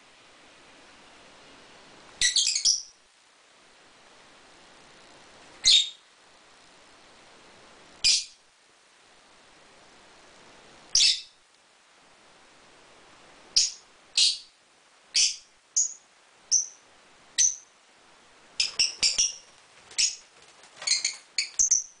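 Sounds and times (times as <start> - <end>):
lovebirds calling: 2.2 - 3.0, 5.6 - 6.1, 8.0 - 8.4, 10.9 - 11.4, 13.5 - 17.7, 18.6 - 22.0.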